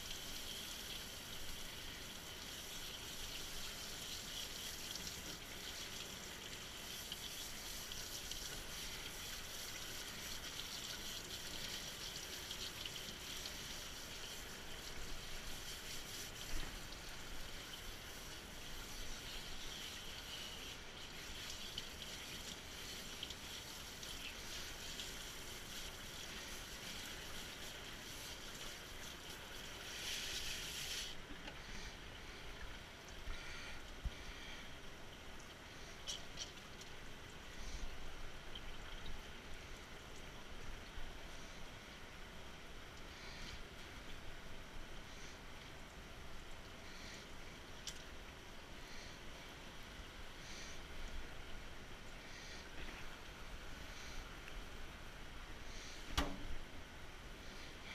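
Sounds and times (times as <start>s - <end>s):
brief knock: 56.1s - 56.5s.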